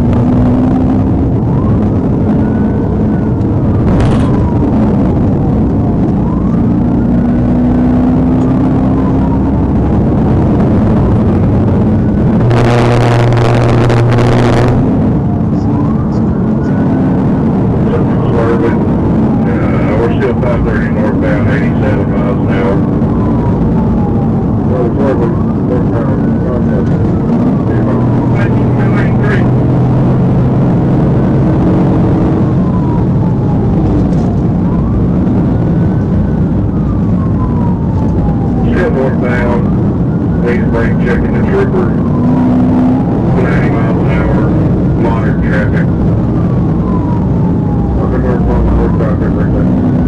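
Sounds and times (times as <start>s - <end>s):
car engine: 0.0s - 50.0s
faint siren wailing: 0.0s - 50.0s
road and wind noise: 0.0s - 50.0s.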